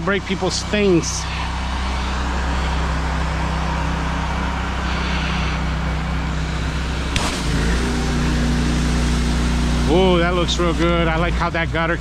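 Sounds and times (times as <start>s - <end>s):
pressure washer engine running: 0.0s - 12.0s
sharp click: 7.2s - 7.5s.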